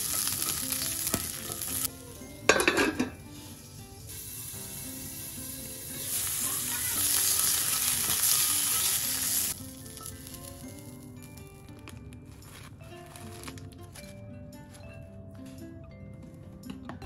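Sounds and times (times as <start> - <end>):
sausages sizzling in a skillet: 0.0 - 11.1
soft background music: 0.0 - 17.0.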